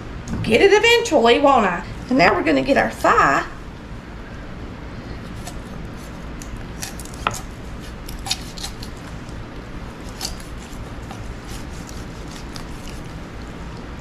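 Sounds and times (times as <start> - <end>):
knife slicing raw chicken: 10.0 - 13.2.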